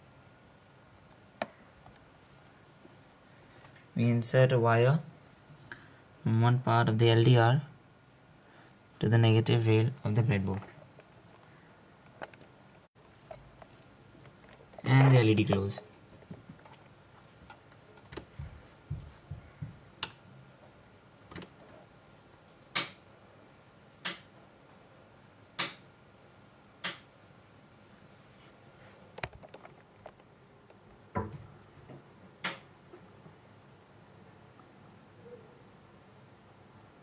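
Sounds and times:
faint room noise: 0:00.0 - 0:37.0.

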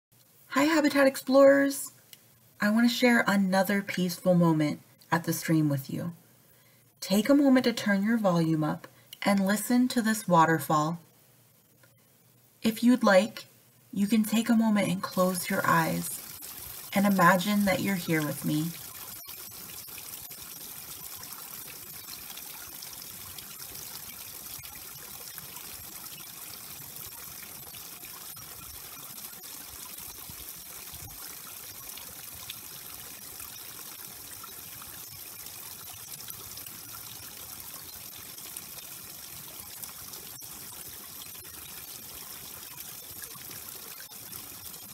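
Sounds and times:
water trickling and splashing: 0:14.1 - 0:44.9.

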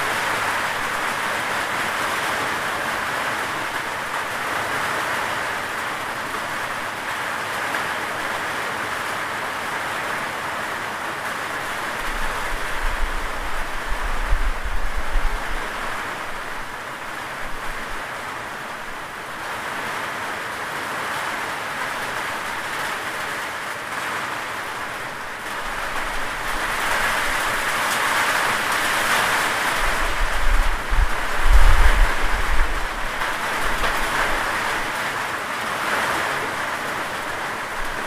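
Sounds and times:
steady rain falling: 0:00.0 - 0:38.0.

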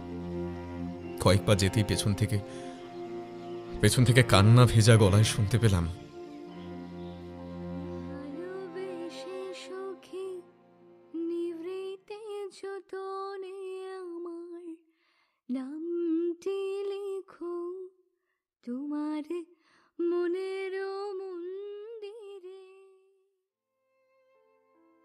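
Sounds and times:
woman singing unaccompanied: 0:07.8 - 0:14.8, 0:15.5 - 0:18.0, 0:18.6 - 0:23.2.

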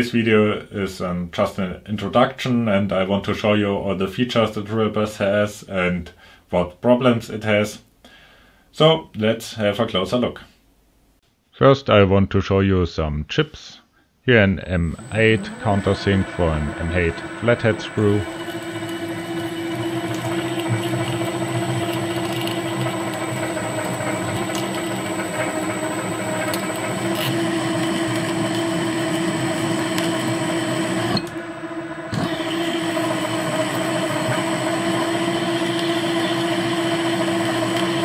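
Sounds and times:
drill press motor hum: 0:14.8 - 0:38.0.

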